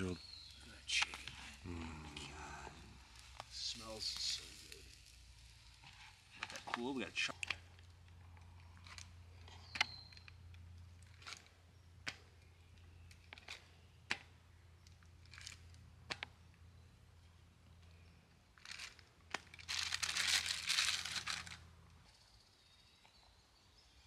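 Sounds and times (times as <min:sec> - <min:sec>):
campfire crackling and popping: 0:00.4 - 0:16.4
plastic packaging crinkling: 0:18.6 - 0:21.6.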